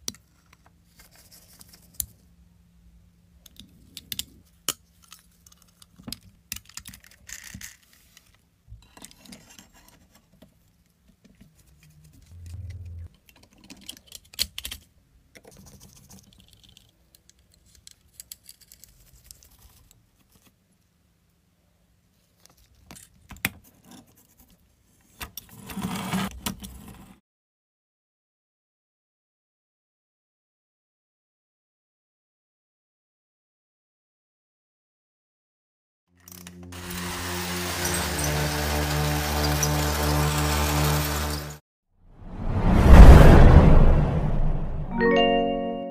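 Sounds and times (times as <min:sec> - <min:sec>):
clicks and taps of model parts: 0:03.4 - 0:09.5, 0:13.1 - 0:19.4.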